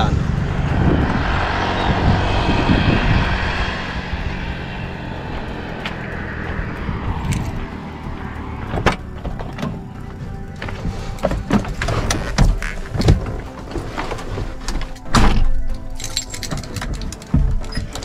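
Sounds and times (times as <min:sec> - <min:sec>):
rushing vehicle noise: 0:00.0 - 0:18.0.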